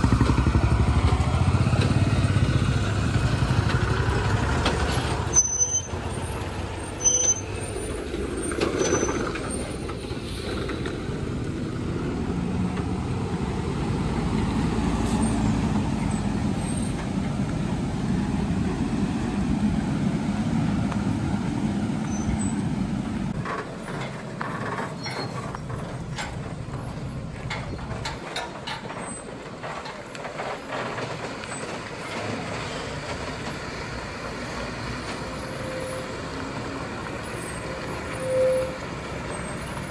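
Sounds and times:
lorry diesel engine labouring: 0.0s - 39.9s
air brake hiss: 10.0s - 10.8s.

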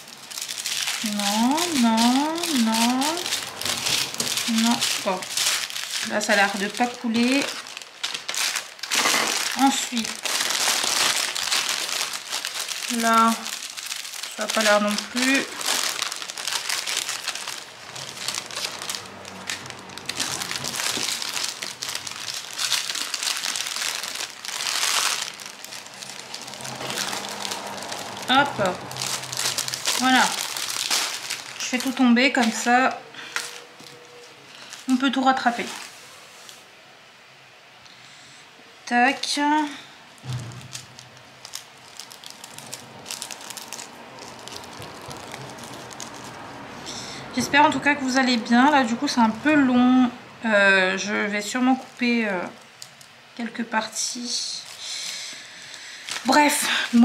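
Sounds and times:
small clicks and crackles: 0.0s - 32.6s, 40.2s - 46.5s, 51.8s - 53.2s
plastic bags crinkling: 0.0s - 36.7s, 39.1s - 49.8s, 50.8s - 57.0s.

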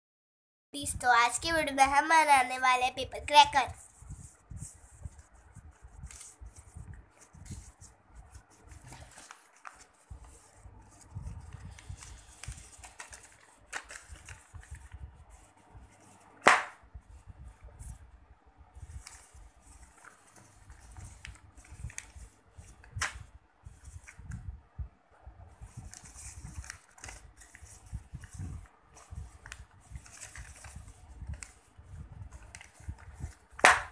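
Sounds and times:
paper folding and rustling: 3.5s - 18.2s, 18.8s - 24.5s, 25.4s - 33.9s
sharp paper crack: 3.8s - 16.9s, 18.8s - 24.4s, 25.6s - 33.9s.

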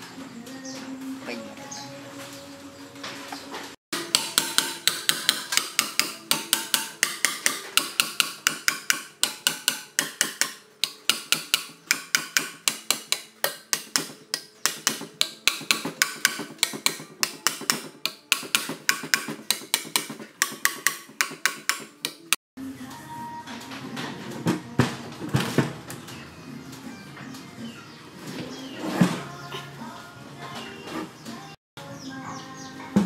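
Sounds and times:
sharp metallic taps: 4.0s - 22.4s.

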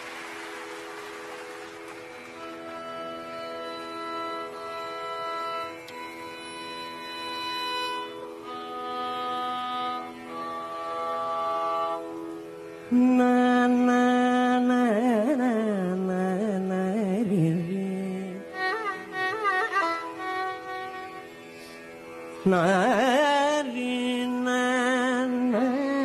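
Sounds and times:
man singing ornamented phrases: 12.9s - 18.6s, 22.5s - 26.0s.

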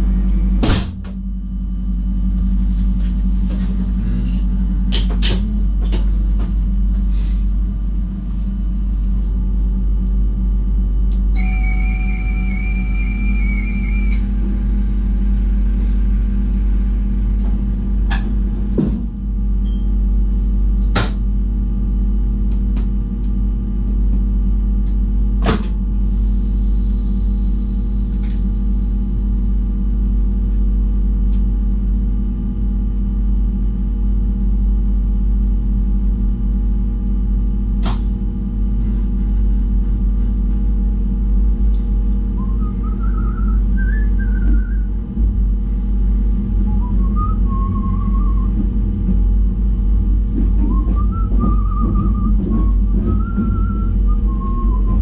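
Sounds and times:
rising train motor whine: 0.0s - 20.8s, 21.4s - 55.0s
electric train humming: 1.4s - 19.4s, 38.4s - 55.0s.

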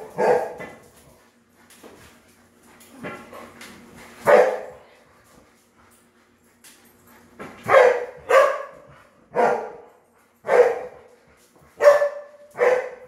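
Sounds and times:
dog barking: 0.0s - 0.6s, 4.3s - 4.7s, 7.7s - 9.9s, 10.5s - 11.0s, 11.8s - 13.0s.

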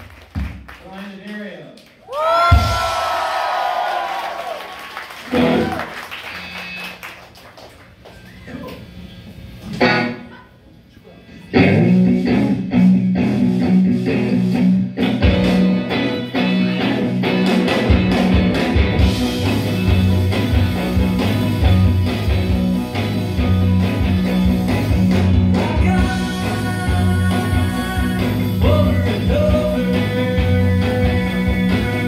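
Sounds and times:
drums: 0.0s - 1.2s, 2.1s - 7.1s, 8.0s - 10.4s, 11.2s - 32.0s
electric guitars: 5.2s - 7.2s, 8.6s - 10.4s, 11.3s - 32.0s
low bass notes: 11.6s - 32.0s.

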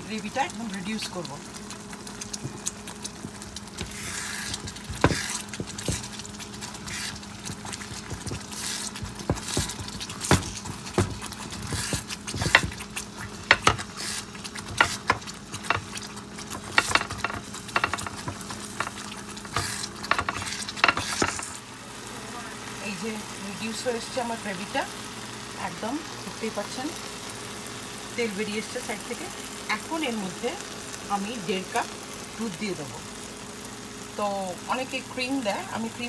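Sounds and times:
gravy bubbling and sizzling: 0.0s - 36.0s
steady low hum: 0.0s - 36.0s.

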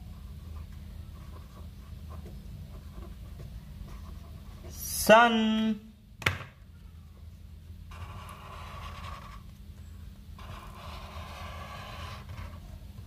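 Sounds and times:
marker scratching on paper: 0.0s - 4.7s, 7.9s - 9.5s, 10.4s - 12.8s.

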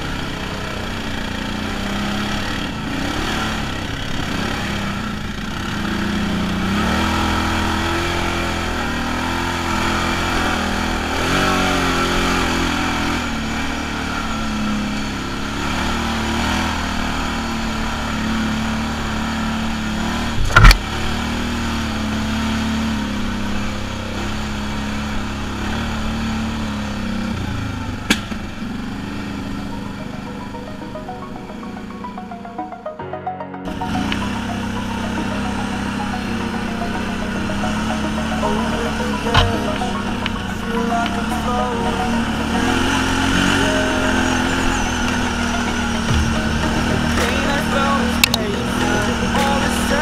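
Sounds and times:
atv engine running: 0.0s - 50.0s.

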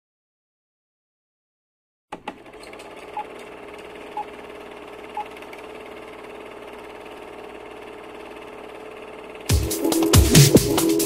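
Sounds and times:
projector clicks: 2.1s - 4.4s
film projector whirring: 2.1s - 11.0s.

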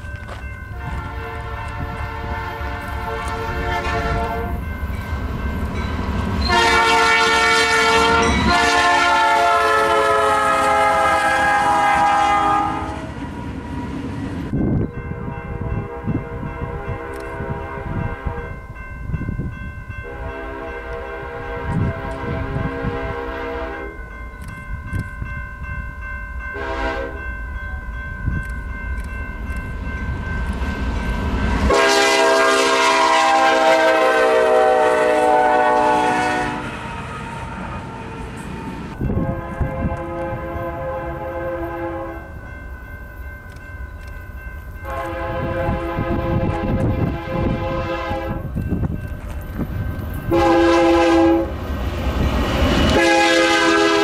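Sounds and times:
second train horn: 0.8s - 4.6s, 6.4s - 13.2s, 15.2s - 18.6s, 20.0s - 24.0s, 26.6s - 27.2s, 31.7s - 42.3s, 44.8s - 48.6s, 50.3s - 51.6s, 52.9s - 54.0s
locomotive horn: 0.8s - 4.7s, 6.4s - 13.2s, 15.1s - 18.6s, 20.0s - 24.0s, 26.5s - 27.3s, 31.6s - 42.4s, 44.8s - 48.6s, 50.3s - 51.6s, 52.9s - 54.0s.

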